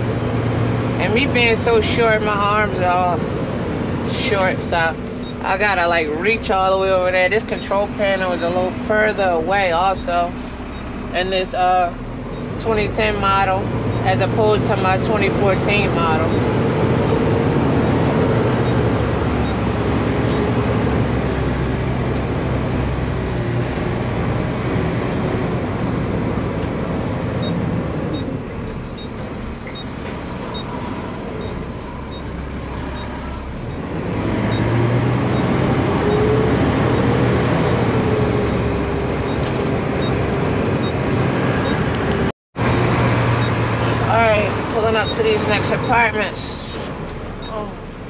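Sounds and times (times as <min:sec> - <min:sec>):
road noise: 0:00.0 - 0:48.0
truck engine drone: 0:00.0 - 0:48.0.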